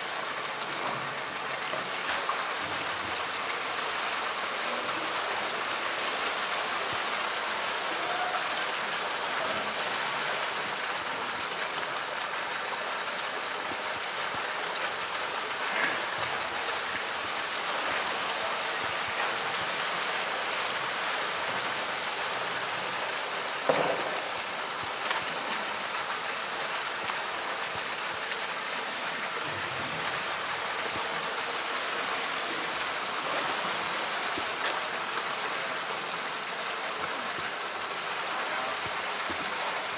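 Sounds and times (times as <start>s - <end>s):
running water rushing: 0.0s - 39.9s.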